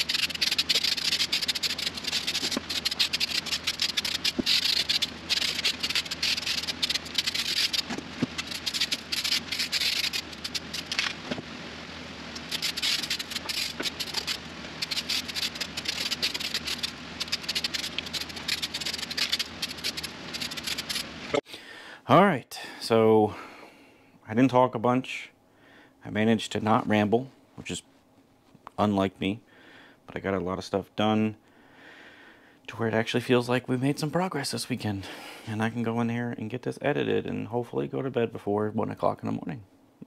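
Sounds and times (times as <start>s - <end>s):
spray paint can hissing: 0.0s - 11.2s, 12.3s - 21.4s.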